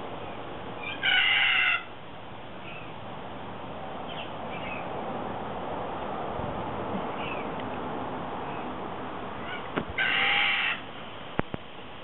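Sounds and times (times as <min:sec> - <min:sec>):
loud bird call: 0:00.8 - 0:01.9, 0:09.4 - 0:10.9.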